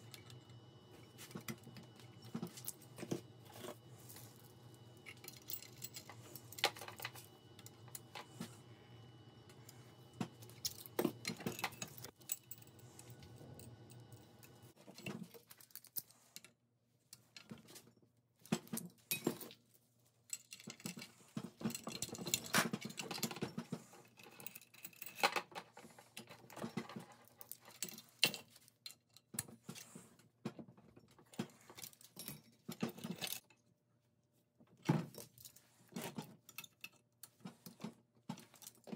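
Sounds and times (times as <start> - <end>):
chain links jangling on metal: 5.0 - 7.1.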